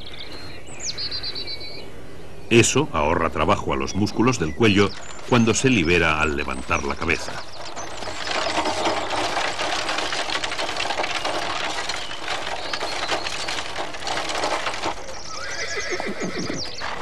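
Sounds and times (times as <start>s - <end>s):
clattering and rattling: 4.1s - 17.0s
horse whinnying: 15.1s - 17.0s.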